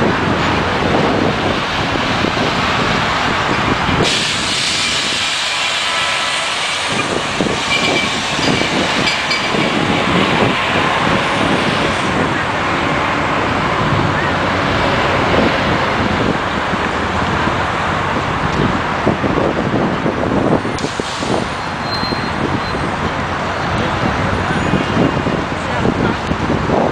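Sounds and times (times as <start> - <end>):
bus engine running: 0.0 - 26.9
street traffic: 0.0 - 26.9
loud air brake hiss: 4.0 - 8.8, 20.8 - 22.4.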